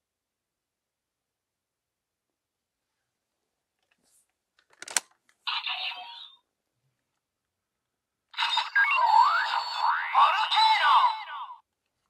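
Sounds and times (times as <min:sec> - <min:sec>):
plastic click: 0:04.6 - 0:05.3
toy electronic sound effects: 0:08.4 - 0:11.5.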